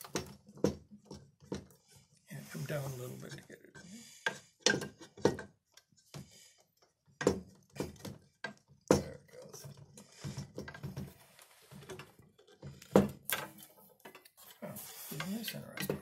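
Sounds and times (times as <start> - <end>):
metal clicks and knocks: 0.0 - 1.8, 4.2 - 11.1.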